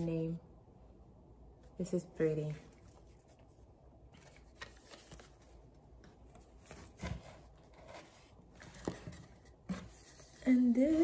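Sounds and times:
packaging rustling: 2.7 - 5.7.

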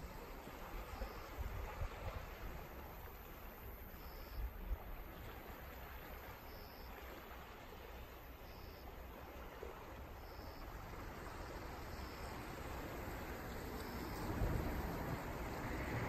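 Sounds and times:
sea waves washing on rocks: 9.2 - 16.0
wind rumble on microphone: 12.4 - 16.0.

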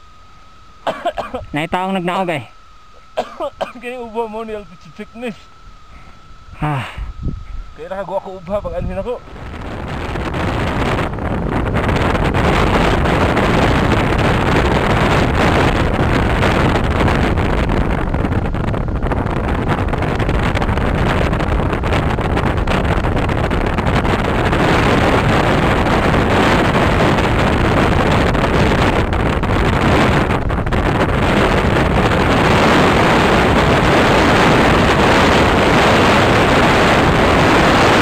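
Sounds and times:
wind buffeting microphone: 5.6 - 38.0.

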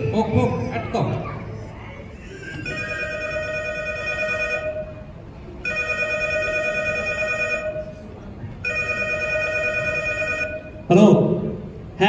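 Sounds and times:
telephone ringing: 2.6 - 5.0, 5.6 - 7.9, 8.6 - 10.8.

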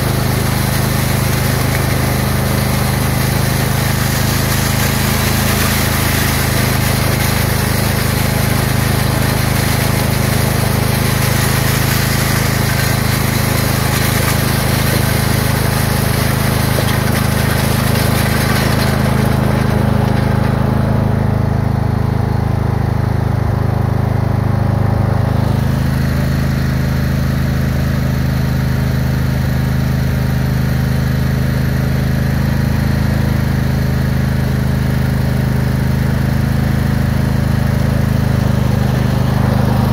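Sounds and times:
steel scraping across gravel: 0.0 - 21.1
lawn tractor engine running: 0.0 - 39.9.

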